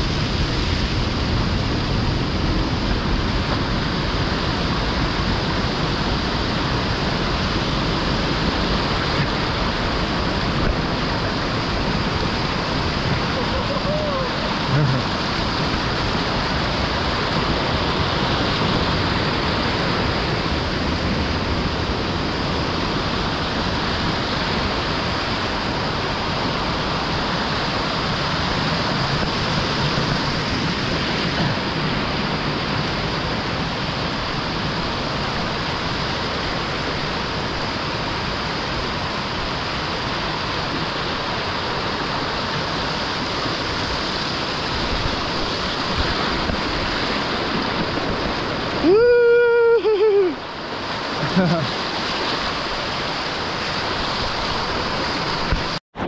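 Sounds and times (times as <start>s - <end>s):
river rushing through a cave: 0.0s - 55.8s.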